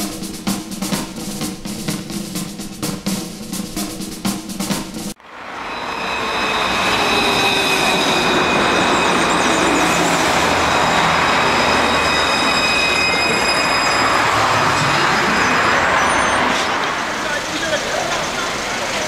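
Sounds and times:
tram wheels on rail: 0.0 - 19.0
high whining tones: 5.2 - 19.0.

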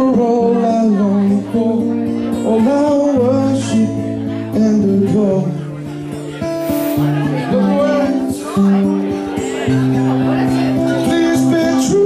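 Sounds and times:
man singing: 0.0 - 6.0, 6.8 - 8.9, 10.4 - 12.0
acoustic guitar chords: 0.0 - 12.0.

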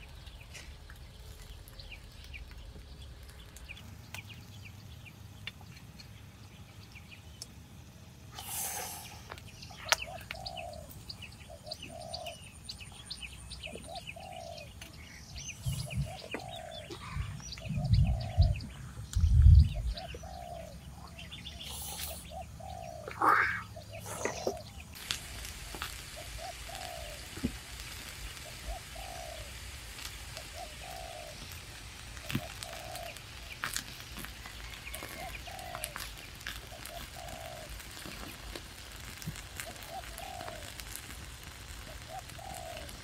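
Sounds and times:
dull low thumps: 17.6 - 20.0.

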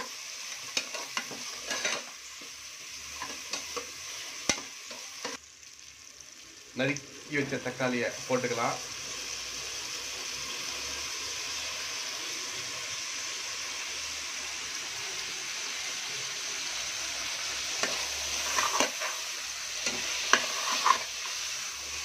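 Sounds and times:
spatula scraping and knocking pan: 0.0 - 2.6, 17.8 - 19.2, 19.8 - 21.3
vegetables sizzling in hot oil: 0.0 - 22.0.

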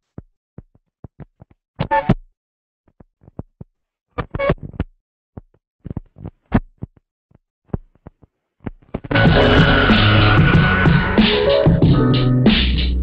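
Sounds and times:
chopped record bursts: 7.7 - 13.0.

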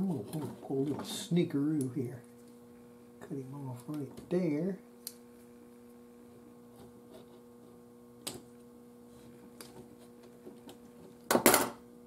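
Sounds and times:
steady electrical hum: 0.0 - 12.0
light clicks of wiring: 5.0 - 5.2.

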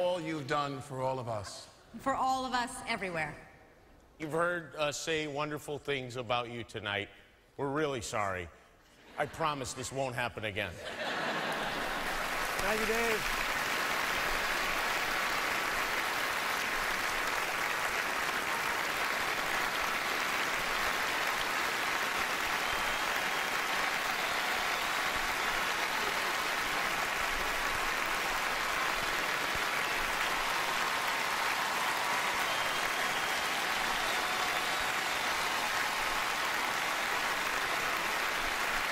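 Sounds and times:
audience applauding: 11.0 - 38.9.

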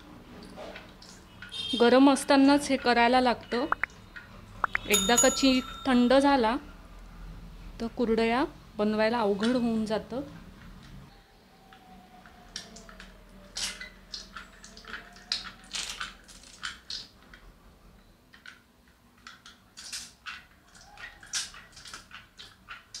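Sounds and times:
dough squelching: 12.4 - 17.3, 19.1 - 23.0.

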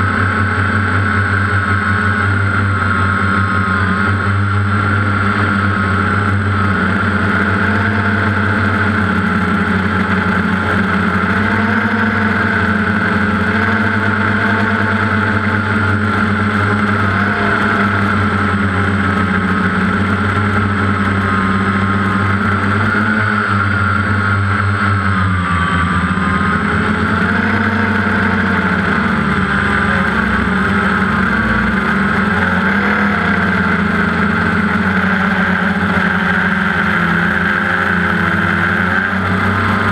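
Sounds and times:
drone propellers humming: 0.0 - 39.9.

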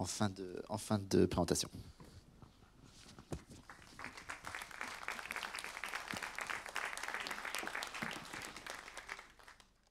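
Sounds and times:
audience clapping: 3.6 - 9.9.

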